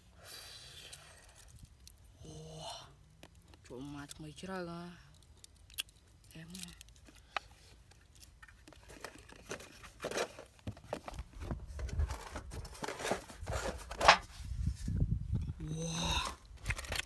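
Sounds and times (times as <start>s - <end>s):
cardboard flaps rustling: 8.8s - 14.4s.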